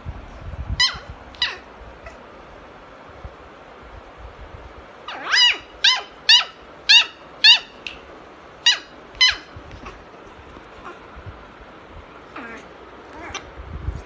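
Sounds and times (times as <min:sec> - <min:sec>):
puppy yipping: 0:00.8 - 0:02.2, 0:05.1 - 0:07.9, 0:08.6 - 0:10.1.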